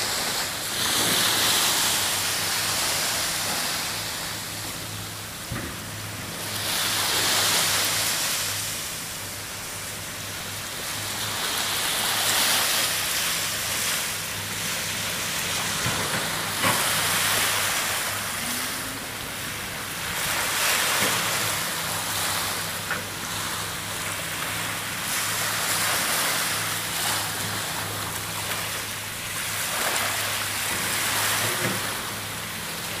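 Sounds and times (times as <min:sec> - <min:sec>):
small waves washing on sand: 0:00.0 - 0:33.0.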